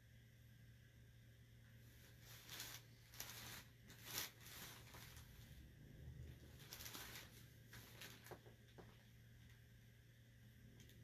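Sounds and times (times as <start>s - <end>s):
low steady hum: 0.0s - 11.0s
paper scraping on tabletop: 2.0s - 5.6s.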